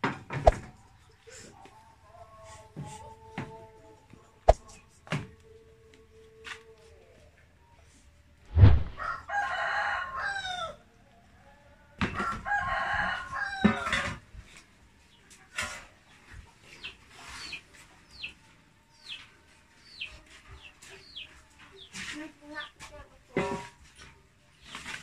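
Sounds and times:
sharp knock: 8.5 - 9.0
rooster crowing: 8.9 - 10.8, 12.1 - 14.2.

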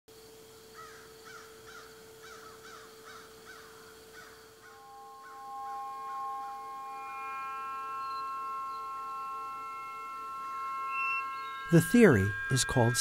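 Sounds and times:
faint steady hum: 0.1 - 13.0
clear steady tones: 2.9 - 13.0.

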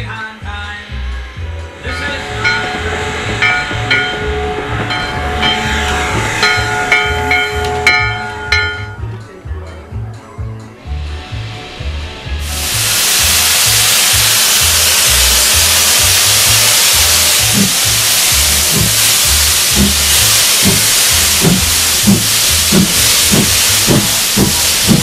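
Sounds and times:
steam hissing loudly: 0.8 - 9.0, 10.8 - 25.0
locomotive exhaust chuffs: 1.0 - 9.2, 10.8 - 25.0.

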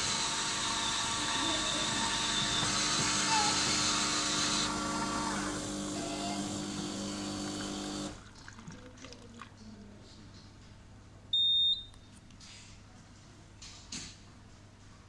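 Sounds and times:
vending machine humming: 0.0 - 8.2.

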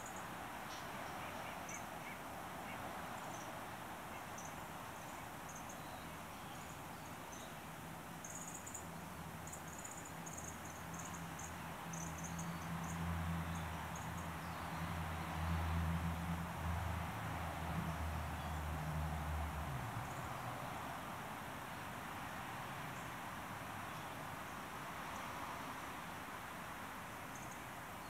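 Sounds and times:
background hiss: 0.0 - 28.0
small birds high thin calls: 0.7 - 2.8.

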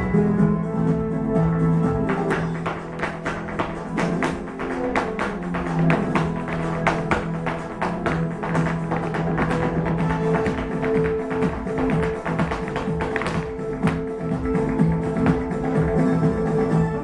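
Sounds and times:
flamenco guitar music: 2.0 - 16.1
footwork taps on stage floor: 2.1 - 14.1.

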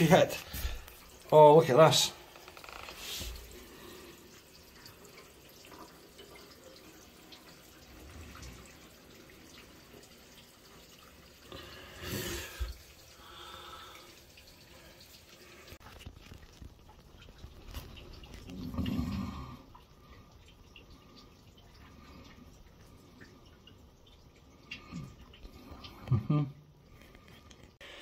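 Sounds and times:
faint water dripping: 0.0 - 28.0
rustling noise: 15.8 - 18.5.

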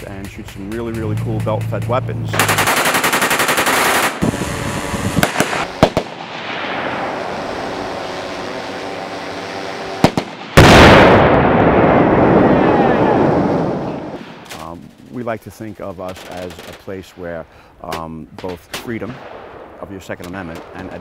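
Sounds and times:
automatic gunfire: 2.4 - 4.2, 5.2 - 6.4, 10.0 - 11.2
single gunshots: 2.4 - 4.2, 5.2 - 6.9, 10.0 - 12.0
large explosion: 5.2 - 7.7, 10.0 - 14.5.

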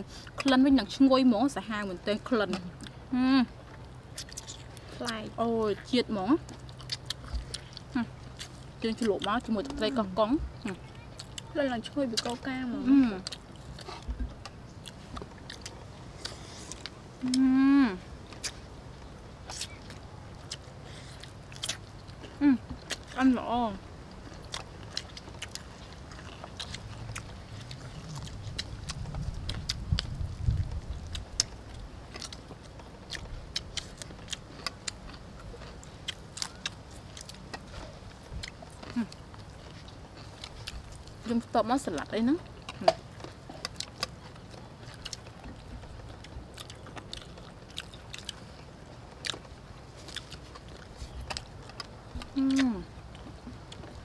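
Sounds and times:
people chewing crunchy food: 0.0 - 54.0
low rumble: 11.8 - 33.8.

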